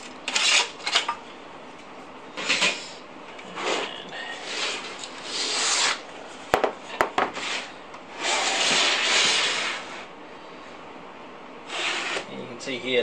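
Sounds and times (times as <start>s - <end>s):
metal chassis scraping on desk: 0.3s - 1.1s.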